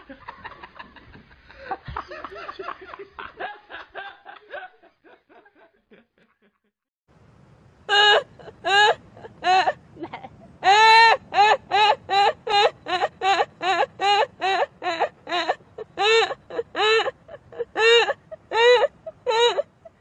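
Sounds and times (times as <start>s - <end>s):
man laughing: 0.0s - 6.7s
woman laughing in high hoots: 7.9s - 19.7s.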